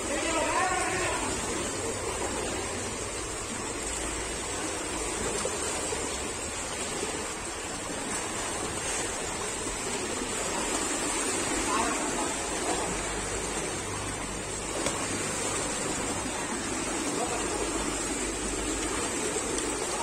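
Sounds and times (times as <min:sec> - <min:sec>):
swimmers splashing pool water: 0:00.0 - 0:20.0.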